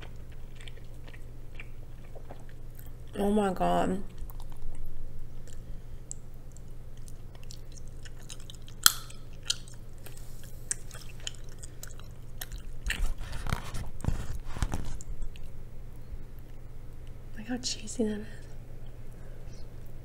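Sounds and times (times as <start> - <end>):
close chewing: 0.0 - 3.2, 4.0 - 17.2
wet mouth clicks: 5.4 - 13.0.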